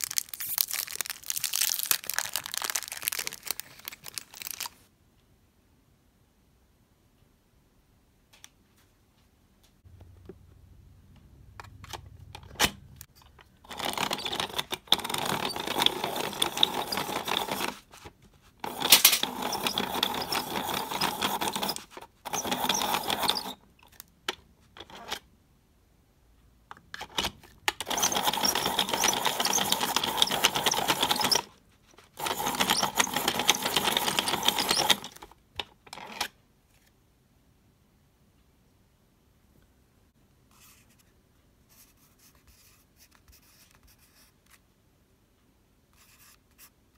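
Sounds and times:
pencil sharpener grinding: 13.7 - 18.0, 18.6 - 23.6, 27.8 - 31.5, 32.1 - 35.3.

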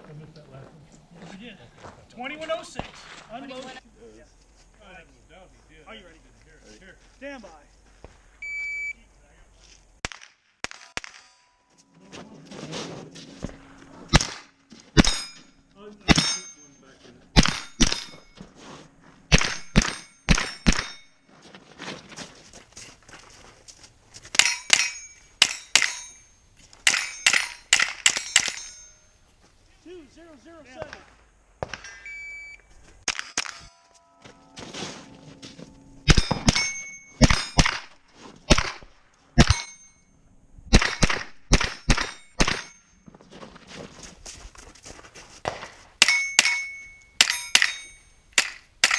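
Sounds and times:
rifle shots: 10.0 - 11.4, 14.1 - 15.3, 17.4 - 18.1, 19.3 - 21.0, 36.1 - 39.8, 40.7 - 42.8
steel plate ringing: 14.6 - 21.2, 24.4 - 29.2, 33.4 - 37.8, 39.4 - 40.3, 41.7 - 43.1, 46.0 - 48.9.

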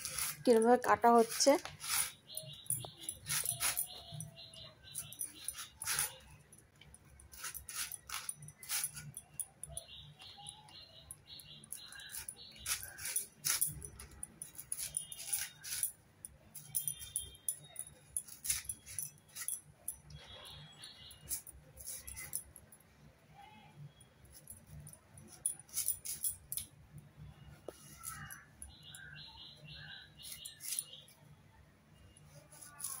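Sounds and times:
blade peeling root: 0.0 - 2.3
bangles jingling: 0.0 - 22.9, 23.8 - 27.1, 27.8 - 31.2, 32.0 - 33.0.

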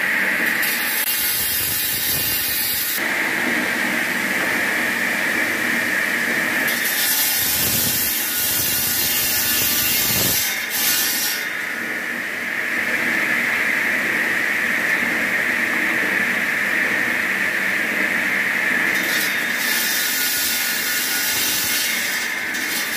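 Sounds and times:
stone-cutting saw whine: 0.0 - 22.9
harsh hissing grind: 1.1 - 3.0, 6.5 - 10.6.

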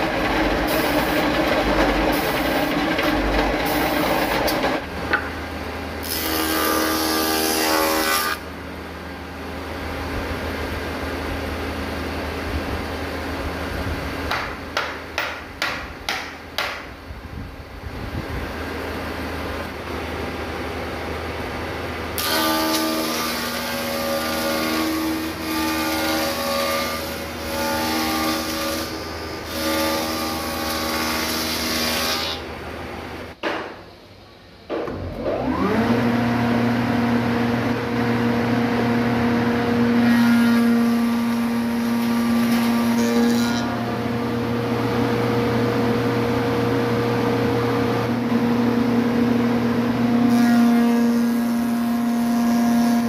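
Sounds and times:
machine motor humming: 0.0 - 5.2
sharp knocks: 14.3 - 16.9.

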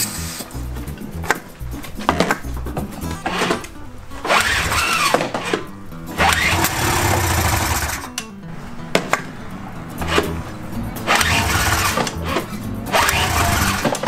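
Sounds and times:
engine cranking: 1.8 - 8.3, 9.7 - 14.0
recoil starter whirring: 3.1 - 8.3, 10.0 - 14.0.

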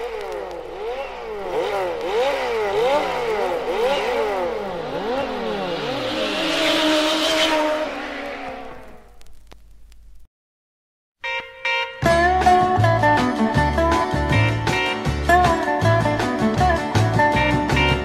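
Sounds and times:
racing cars speeding past: 0.0 - 9.1.

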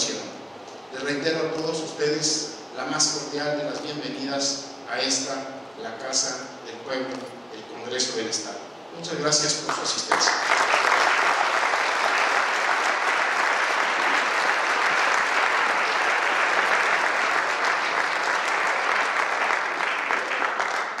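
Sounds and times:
audience applauding: 9.7 - 21.0.

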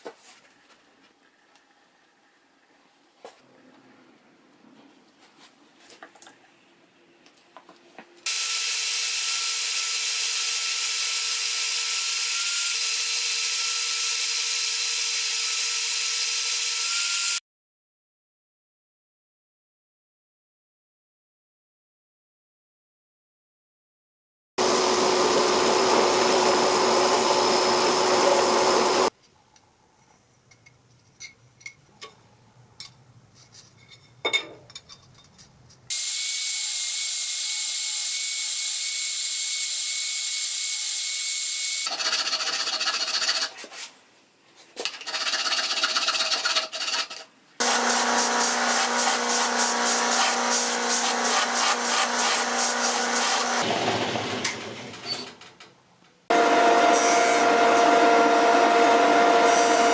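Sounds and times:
bandsaw whining through metal: 24.6 - 29.1, 47.6 - 55.2, 56.3 - 59.9
power tool running loudly: 24.6 - 29.1, 47.6 - 54.7, 56.3 - 59.9.

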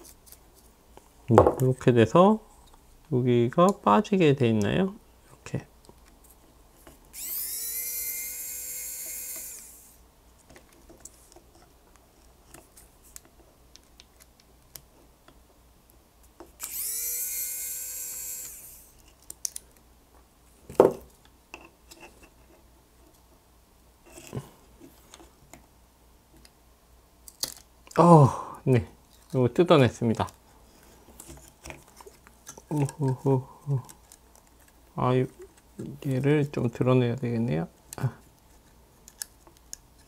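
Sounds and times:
electric screwdriver whining: 7.1 - 10.0, 16.6 - 19.0.

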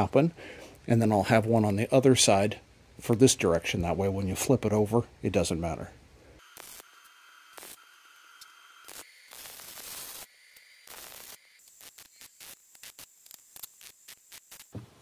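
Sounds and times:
welder arc crackling and hissing: 6.4 - 15.0.

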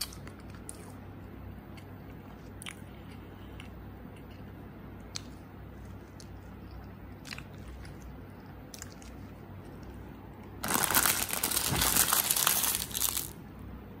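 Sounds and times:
plastic wrapper crinkling: 10.6 - 13.4.

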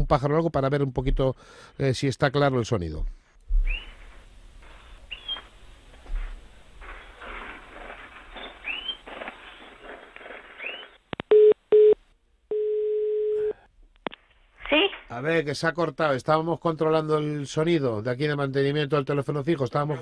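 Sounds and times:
bird chirping over telephone: 4.8 - 5.5, 8.4 - 9.0, 10.5 - 11.0
steady telephone tone: 11.3 - 13.6
telephone beeps: 11.3 - 13.6.

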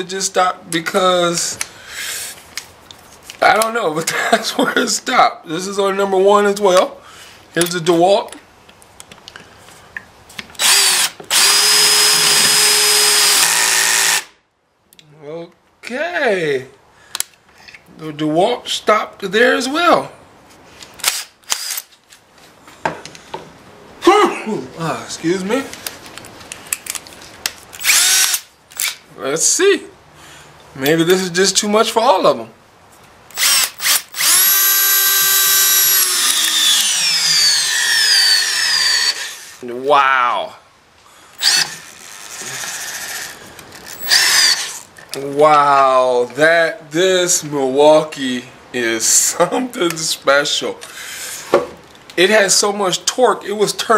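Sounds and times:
cordless drill motor whining: 10.6 - 14.3, 27.8 - 28.4, 33.4 - 39.6, 41.4 - 44.9.

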